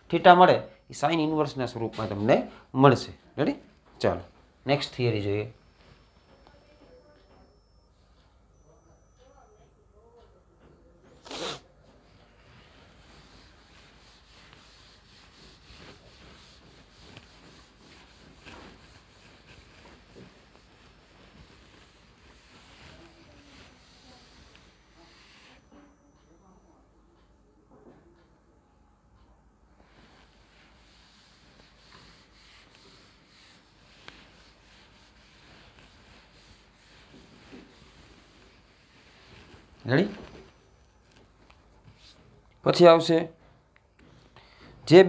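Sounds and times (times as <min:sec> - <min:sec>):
whiteboard being wiped: 0:11.2 - 0:25.9, 0:29.8 - 0:40.7, 0:41.8 - 0:42.4.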